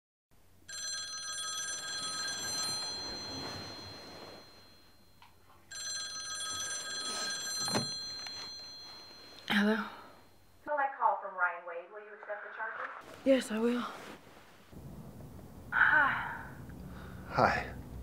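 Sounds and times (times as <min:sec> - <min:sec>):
telephone bell ringing: 0:00.7 - 0:10.6.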